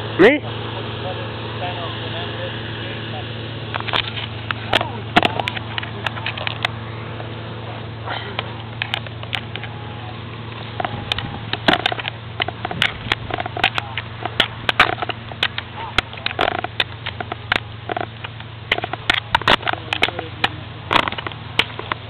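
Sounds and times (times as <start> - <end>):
low hum: 0.0 - 22.0
camera handling knocks and rustling: 10.8 - 15.6.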